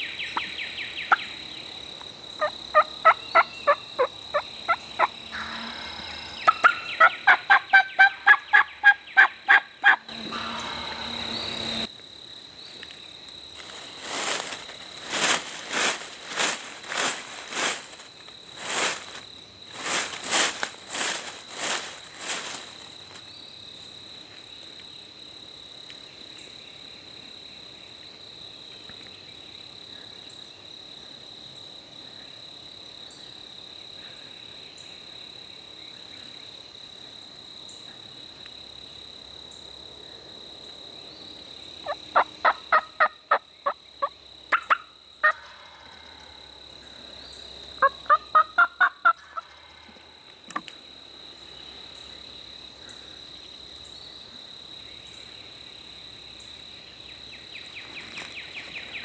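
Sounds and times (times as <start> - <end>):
turkeys gobbling: 2.4 - 5.8, 6.4 - 11.2, 41.8 - 45.7, 47.8 - 49.7
high-pitched insect buzz: 3.4 - 8.0, 9.9 - 12.4.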